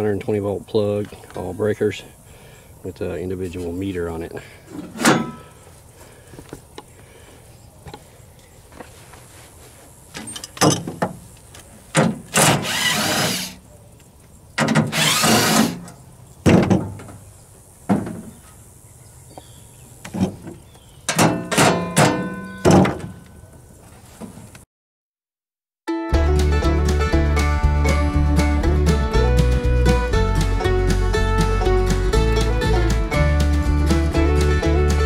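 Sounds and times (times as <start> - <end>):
metallic clanks of panel: 4.8 - 5.5, 20.1 - 23.3
cordless drill running: 12.4 - 13.6, 14.9 - 15.8.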